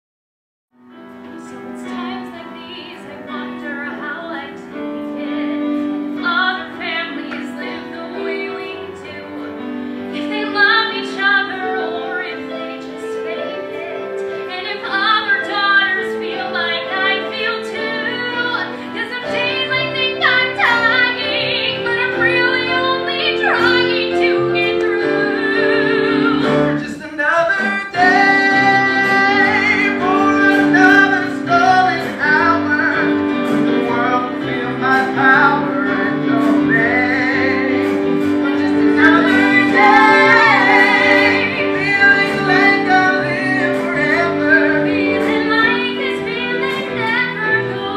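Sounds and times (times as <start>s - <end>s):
instrumental accompaniment: 0.8s - 47.9s
women singing: 5.2s - 9.6s, 10.2s - 26.8s, 38.4s - 47.9s.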